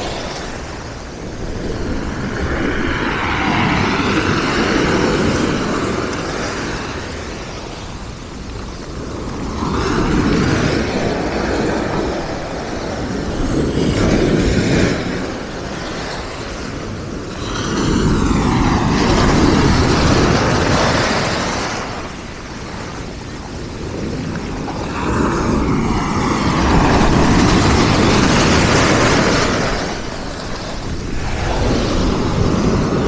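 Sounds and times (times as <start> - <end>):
sea waves breaking on pebbles: 17.4 - 33.0.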